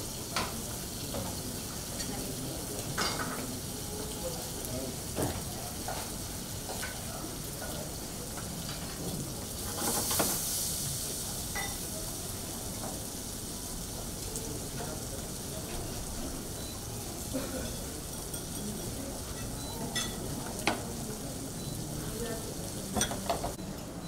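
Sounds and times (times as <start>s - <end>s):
food sizzling in pans: 0.0s - 23.8s.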